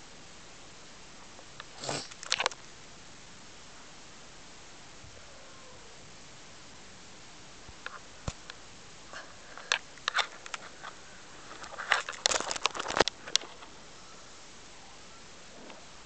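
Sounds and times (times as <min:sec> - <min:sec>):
kitten clicks and rustles: 0:01.6 - 0:02.7, 0:09.2 - 0:13.8
camera bumped and jostled: 0:02.1 - 0:02.6, 0:09.6 - 0:13.7.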